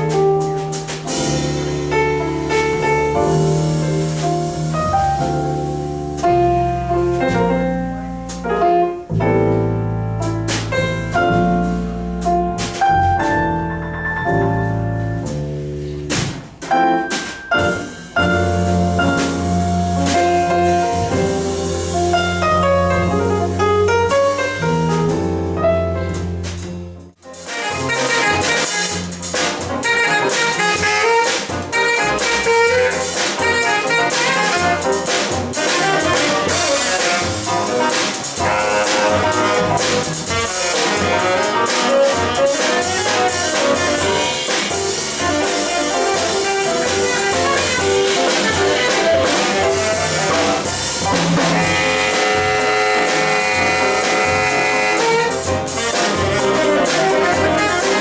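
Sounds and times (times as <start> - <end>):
piano: 0.0 - 58.0
upright bass: 0.0 - 58.0
saxophone playing short notes: 27.5 - 29.0, 29.8 - 34.9, 51.4 - 58.0.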